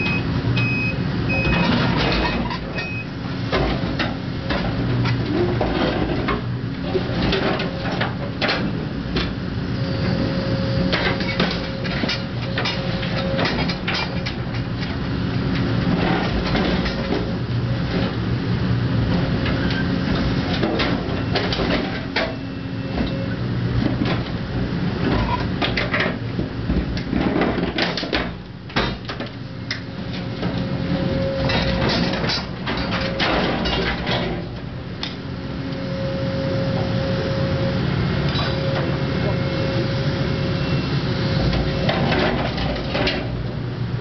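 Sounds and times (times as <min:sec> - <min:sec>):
excavator engine running: 0:00.0 - 0:44.0
metal clanks and crunches: 0:25.1 - 0:35.2.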